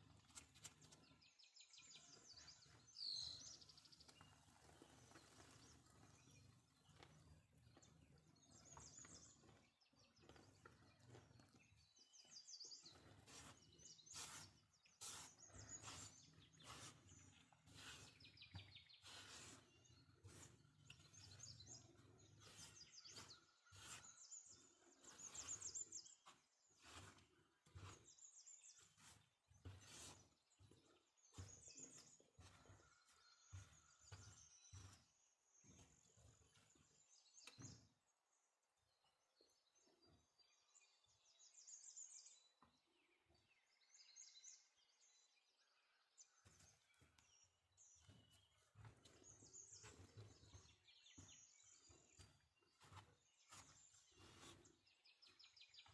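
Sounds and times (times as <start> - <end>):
spatula scraping wooden bowl: 13.2 - 20.6, 22.4 - 24.4, 28.9 - 30.4.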